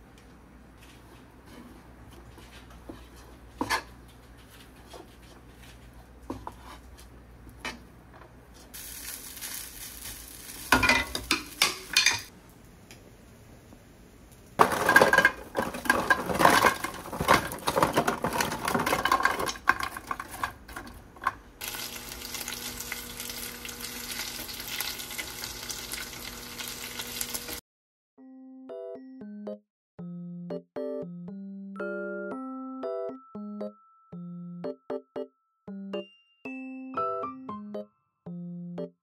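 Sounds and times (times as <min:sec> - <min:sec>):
food sizzling in oil: 0:08.8 - 0:12.3, 0:21.6 - 0:27.6
utensils knocking against pan: 0:10.8 - 0:12.3.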